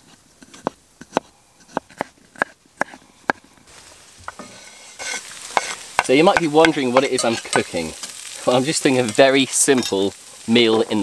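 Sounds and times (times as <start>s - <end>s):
sausage sizzling in a skillet: 3.7s - 11.0s.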